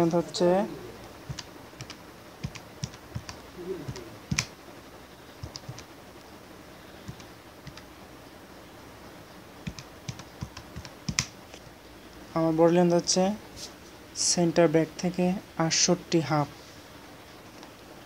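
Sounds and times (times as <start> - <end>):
computer keyboard keys tapping: 1.2 - 4.5, 5.4 - 5.9, 7.0 - 7.9, 9.6 - 11.3.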